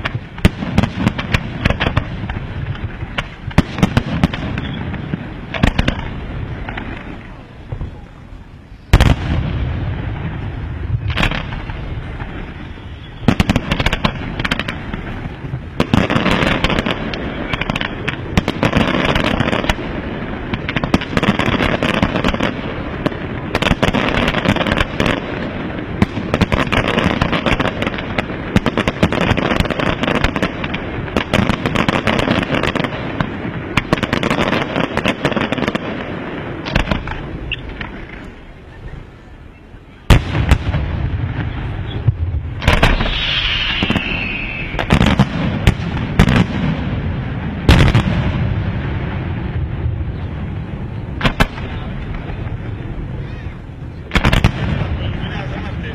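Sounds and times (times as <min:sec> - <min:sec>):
rapid firework bangs and crackling: 0:00.0 - 0:55.9
firework shell bursts: 0:42.6 - 0:46.4.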